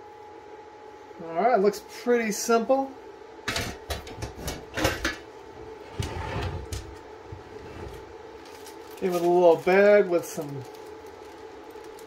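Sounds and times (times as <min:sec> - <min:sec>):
rustling: 0:06.0 - 0:12.0.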